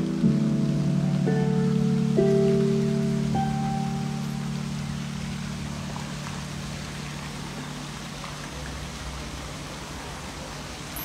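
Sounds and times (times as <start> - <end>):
low sustained note: 0.0 - 8.0
splashing water hiss: 0.0 - 11.0.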